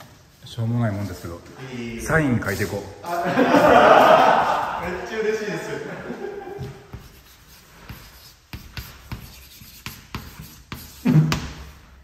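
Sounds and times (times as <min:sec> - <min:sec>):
chalk scratching on blackboard: 0:06.8 - 0:11.8.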